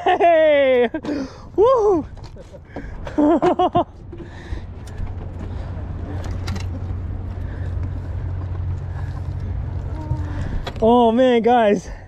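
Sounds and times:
wind noise: 0:01.3 - 0:11.1
boat motor humming: 0:02.6 - 0:11.2.

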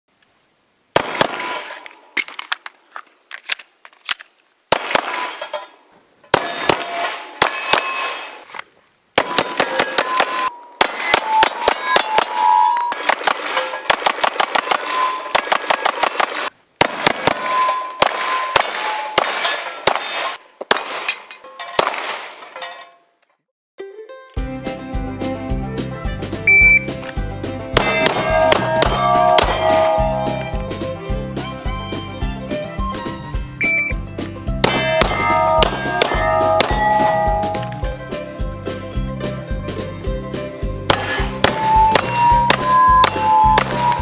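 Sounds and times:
rapid pistol shots: 0:01.0 - 0:01.8, 0:04.7 - 0:05.4, 0:06.3 - 0:08.4, 0:09.2 - 0:21.2, 0:34.6 - 0:37.1, 0:40.9 - 0:44.0
steel targets clanging: 0:05.0 - 0:08.4, 0:09.2 - 0:16.5, 0:17.3 - 0:23.2, 0:27.8 - 0:30.6, 0:34.6 - 0:37.8, 0:40.9 - 0:44.0.

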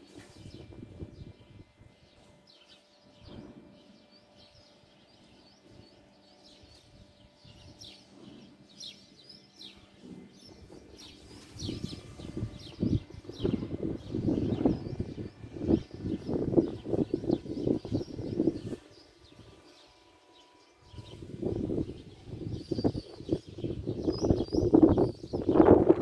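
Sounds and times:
low rumble on microphone: 0:00.0 - 0:02.4, 0:09.6 - 0:19.6, 0:20.8 - 0:26.0
small birds chirping: 0:00.0 - 0:26.0.

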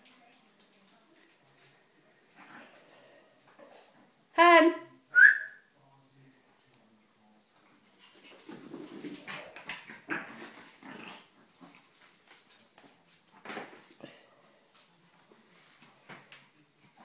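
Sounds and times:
dog claws scuffling on tile: 0:08.1 - 0:14.0.

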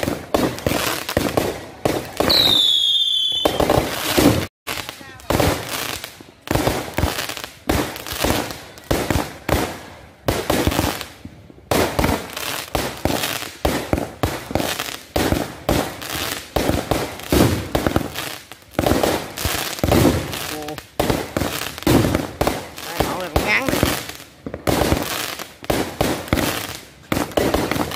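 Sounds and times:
aerial fireworks bangs: 0:03.4 - 0:04.5, 0:18.8 - 0:20.4, 0:21.0 - 0:25.1.

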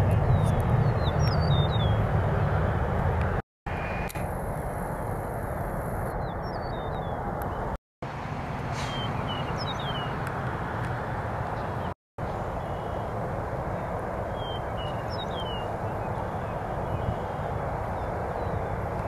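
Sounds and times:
birds chirping: 0:00.0 - 0:02.1, 0:06.0 - 0:07.8, 0:08.8 - 0:10.4, 0:11.4 - 0:19.0
jet engines rumbling: 0:00.0 - 0:19.0.

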